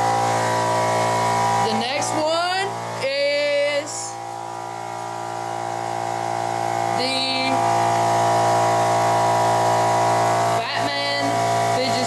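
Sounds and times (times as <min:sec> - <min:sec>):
air compressor motor humming: 0:00.0 - 0:12.0.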